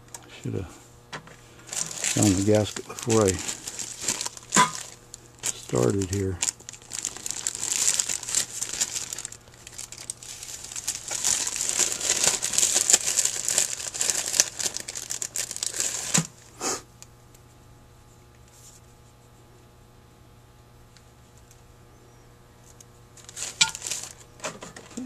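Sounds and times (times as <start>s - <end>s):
plastic bag crinkling: 1.6s - 16.4s, 23.2s - 24.4s.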